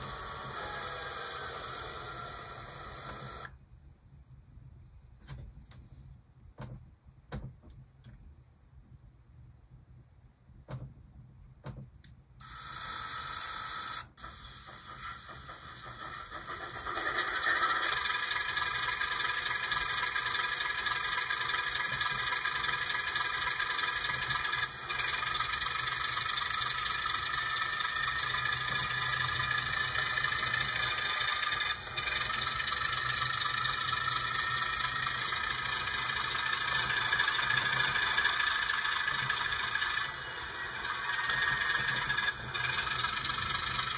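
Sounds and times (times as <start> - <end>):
diesel locomotive starting up: 0.0 - 3.6, 14.2 - 43.9.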